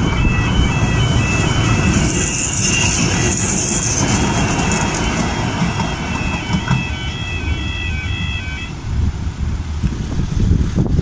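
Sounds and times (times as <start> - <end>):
train rumbling on track: 0.0 - 11.0
thin high tones: 0.8 - 7.7.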